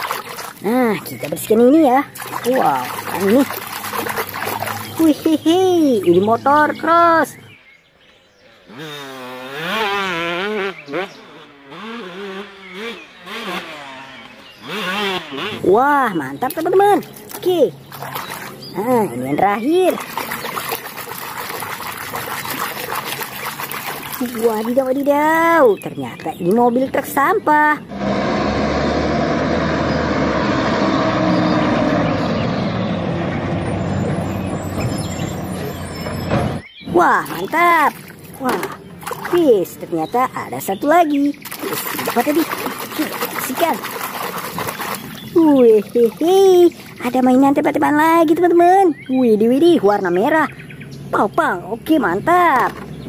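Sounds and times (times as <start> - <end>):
dirt bike engine revving: 8.5 - 16.1, 27.8 - 36.6.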